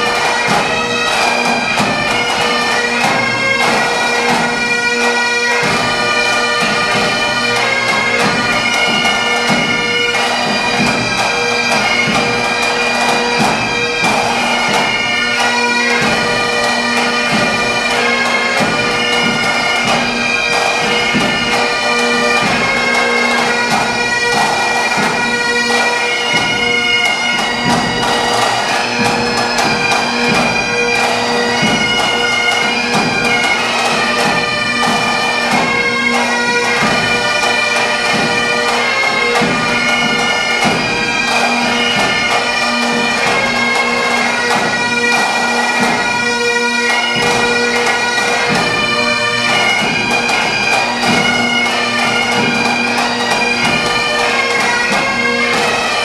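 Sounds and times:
bagpipes playing melody: 0.0s - 56.0s
marching drums: 0.0s - 56.0s.

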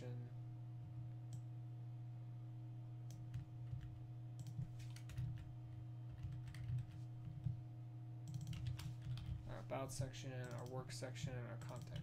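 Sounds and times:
low electrical hum: 0.0s - 12.0s
computer keyboard typing: 3.2s - 5.5s, 6.1s - 7.6s, 8.3s - 9.4s, 10.4s - 10.8s, 11.6s - 12.0s.

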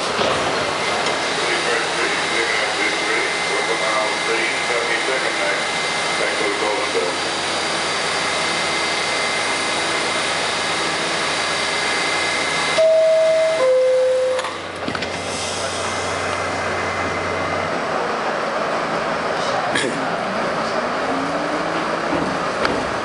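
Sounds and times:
subway car equipment humming: 0.0s - 23.0s
two-tone door chime: 12.8s - 14.6s.

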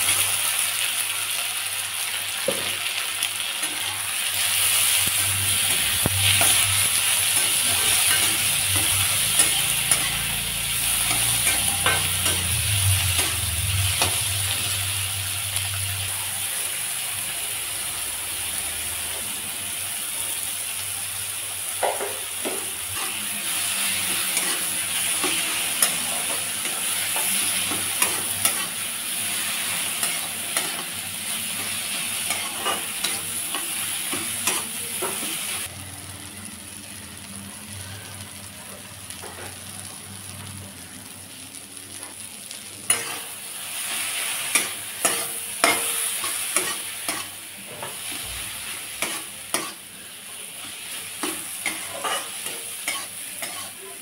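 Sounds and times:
vegetables sizzling in oil: 0.0s - 54.0s
spatula scraping a pan: 22.9s - 35.2s, 42.9s - 50.0s, 50.7s - 53.8s.

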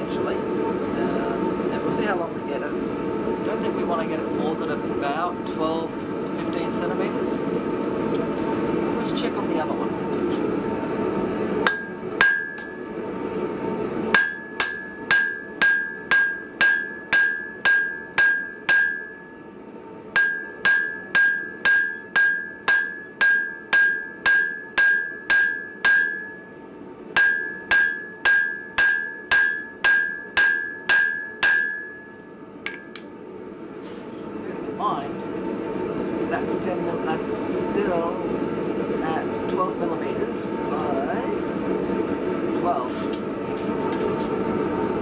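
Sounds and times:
hammer striking ringing anvil: 11.7s - 12.8s, 14.1s - 19.4s, 20.1s - 26.5s, 27.2s - 33.0s.

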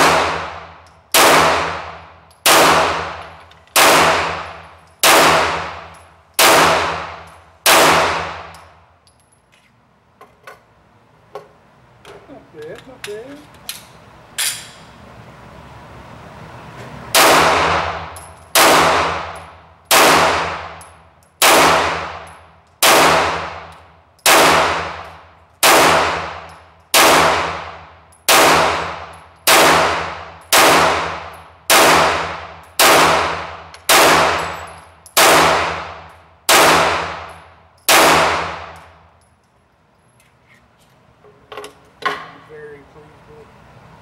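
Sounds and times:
pistol shots echoing indoors: 0.0s - 8.6s, 17.1s - 20.8s, 21.4s - 38.9s.

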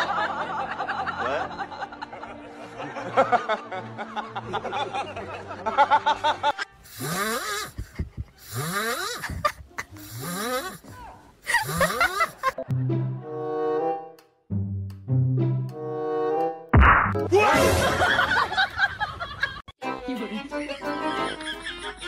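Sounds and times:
music: 0.0s - 6.6s, 12.6s - 18.4s, 19.8s - 22.0s
whistling snoring: 7.0s - 7.8s, 8.5s - 9.2s, 10.1s - 10.8s.

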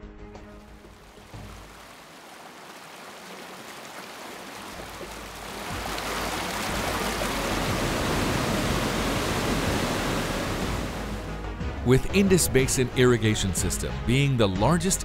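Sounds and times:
river rushing over boulders: 0.8s - 11.2s.

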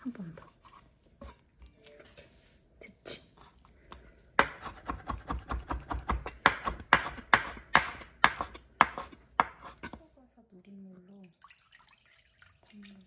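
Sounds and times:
knife tapping on board: 4.4s - 9.7s.

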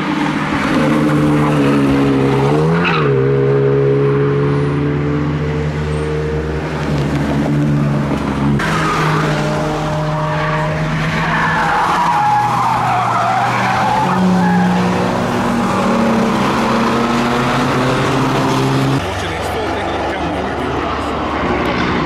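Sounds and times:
car tyres squealing: 0.4s - 3.5s, 7.8s - 22.0s.

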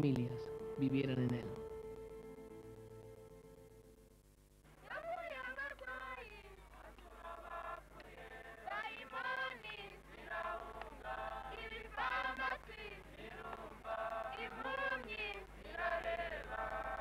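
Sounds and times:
choir singing a hymn: 4.9s - 17.0s.

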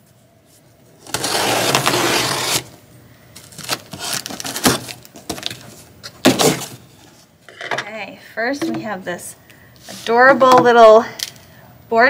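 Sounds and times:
tape and cardboard ripping: 1.0s - 2.8s, 3.5s - 6.8s.

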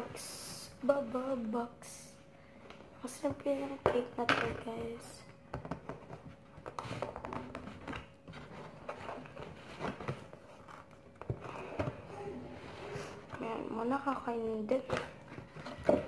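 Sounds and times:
cardboard box rustling: 7.8s - 13.2s.

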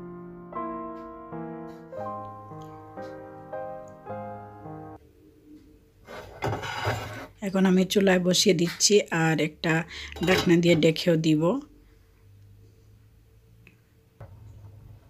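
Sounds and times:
soft piano music: 0.0s - 5.0s.

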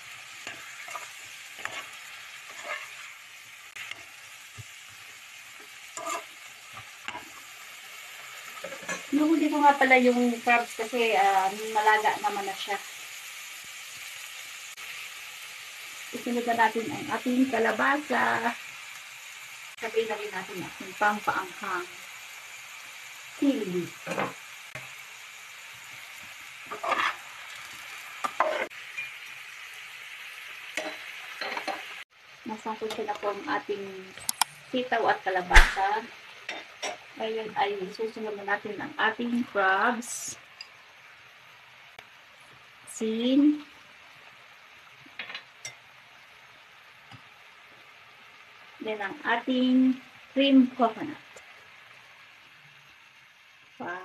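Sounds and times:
food sizzling in frying pan: 0.0s - 54.0s
metal spatula scraping pan: 0.4s - 4.1s, 5.6s - 6.4s, 8.5s - 9.2s, 26.7s - 27.3s, 28.2s - 29.1s.

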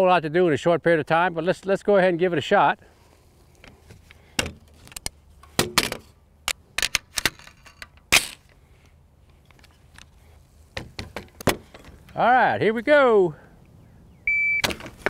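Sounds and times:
rifle metallic clicks and clacks: 5.8s - 8.4s.

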